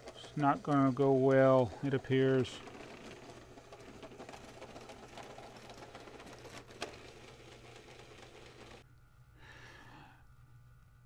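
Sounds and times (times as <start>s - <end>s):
model train motor whirr: 0.0s - 8.8s
model train wheel rattle: 0.0s - 8.8s.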